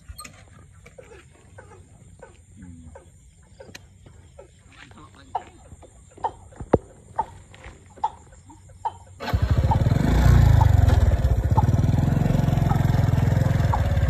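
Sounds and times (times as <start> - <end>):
motorcycle engine: 9.2 - 14.0.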